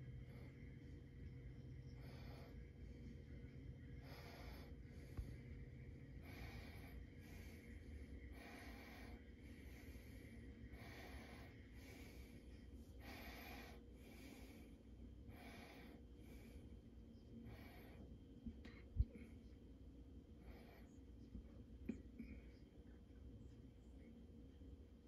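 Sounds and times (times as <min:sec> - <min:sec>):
slow soft breathing: 0:00.0 - 0:19.5
faint steady hum: 0:00.0 - 0:25.0.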